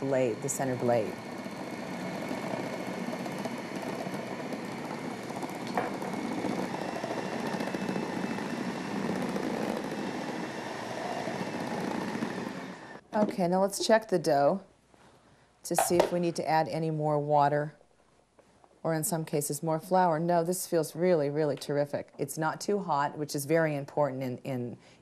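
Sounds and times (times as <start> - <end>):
food processor motor running: 0.0 - 13.0.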